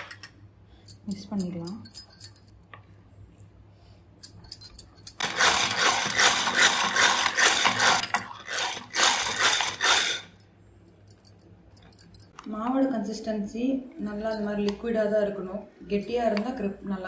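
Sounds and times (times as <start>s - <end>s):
whisk blender churning batter: 5.2s - 10.3s.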